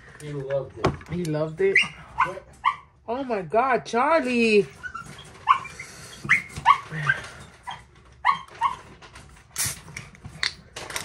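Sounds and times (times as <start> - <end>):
dog whining: 4.8 - 9.0.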